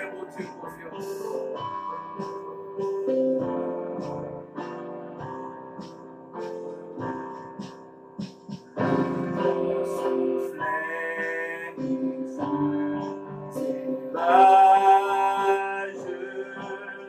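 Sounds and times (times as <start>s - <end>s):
man singing a hymn: 0.0s - 1.4s, 9.4s - 17.0s
instrumental accompaniment: 0.0s - 17.0s.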